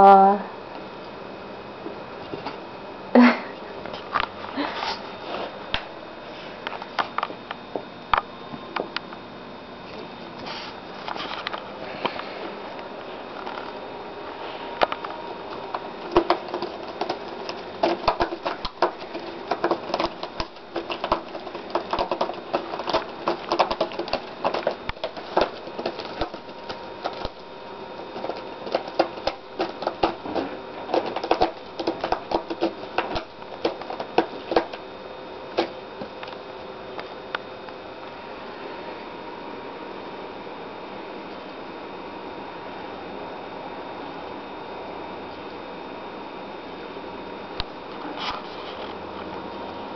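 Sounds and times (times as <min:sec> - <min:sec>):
cat scratching cardboard: 0:14.3 - 0:36.1.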